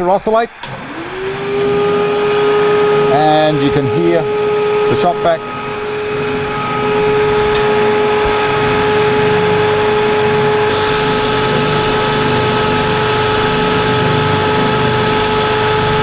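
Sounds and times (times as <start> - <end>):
spindle sander motor whine: 0.0 - 16.0
shop vacuum hiss: 8.8 - 16.0.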